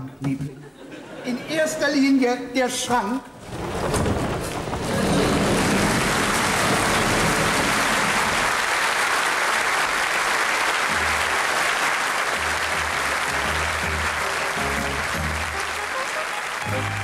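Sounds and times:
audience applauding: 0:03.6 - 0:17.0
music with low bass notes: 0:12.4 - 0:15.6.

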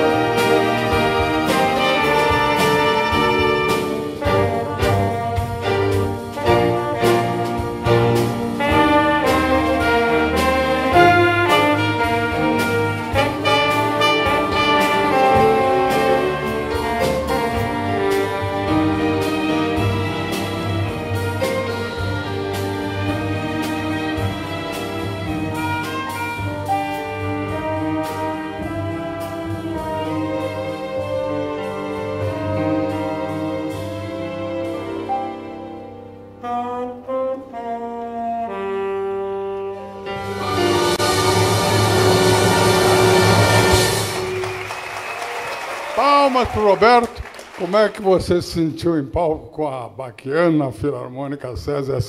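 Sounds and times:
saxophone solo melody: 0:00.0 - 0:24.7, 0:25.4 - 0:30.6, 0:36.2 - 0:41.4
symphony orchestra: 0:00.0 - 0:48.9
grand piano: 0:00.0 - 0:49.9.

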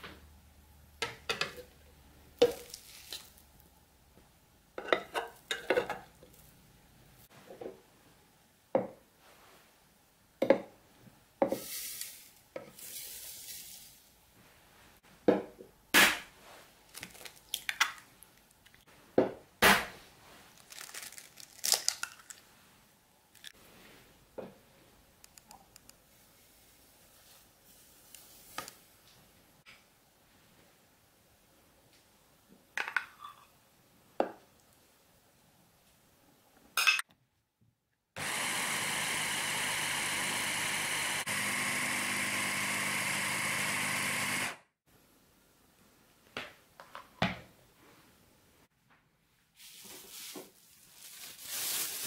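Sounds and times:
sugar pouring hiss: 0:11.6 - 0:14.1.

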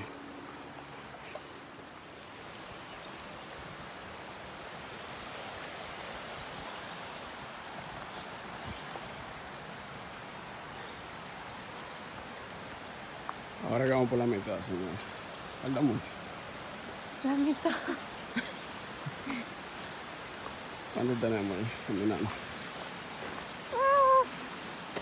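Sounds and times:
stream rushing: 0:00.0 - 0:25.0
faint high bird chirps: 0:23.2 - 0:24.3.

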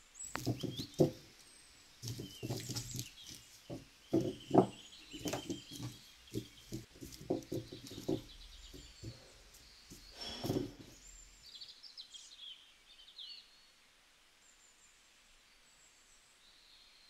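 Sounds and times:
plastic spools clattering: 0:10.2 - 0:10.9.

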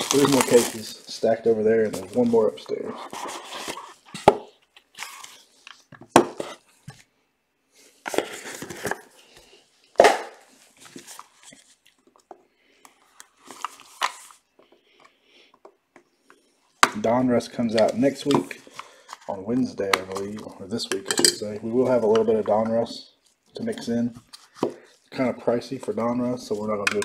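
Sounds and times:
cardboard and plastic rustling: 0:00.0 - 0:07.0, 0:08.0 - 0:09.2, 0:10.5 - 0:12.3.

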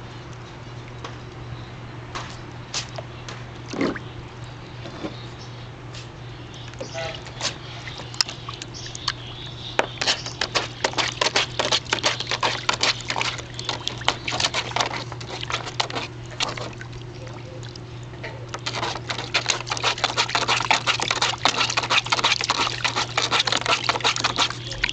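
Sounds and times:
puppy splashing in water: 0:06.8 - 0:24.9.

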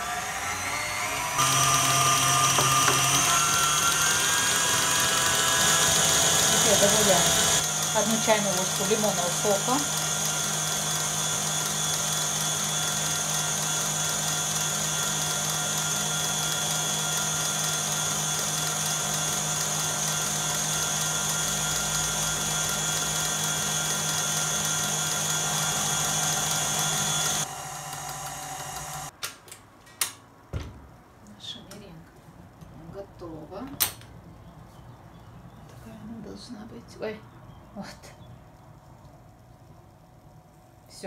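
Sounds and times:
stand mixer whining: 0:00.0 - 0:29.1.

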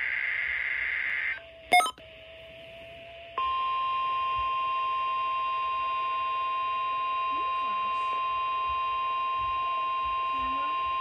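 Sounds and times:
harsh digital data screech: 0:01.7 - 0:01.9
short loud beep: 0:01.7 - 0:01.9
steady high tone: 0:01.7 - 0:01.9.

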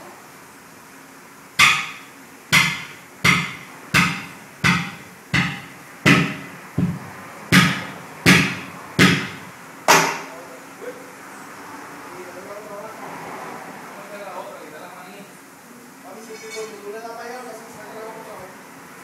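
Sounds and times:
sledgehammer blows ringing: 0:01.6 - 0:10.2.

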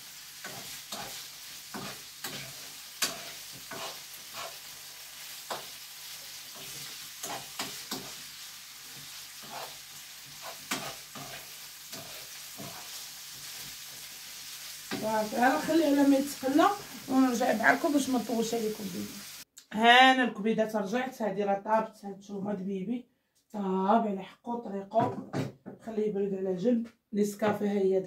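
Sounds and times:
chicken sizzling in a pan: 0:00.0 - 0:19.5
utensil scraping and knocking pan: 0:00.4 - 0:04.7, 0:06.5 - 0:08.2, 0:08.9 - 0:13.7.

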